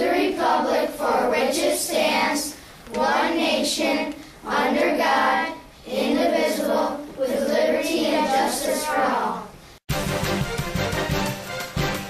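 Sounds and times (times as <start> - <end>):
children reciting together: 0.0 - 9.6.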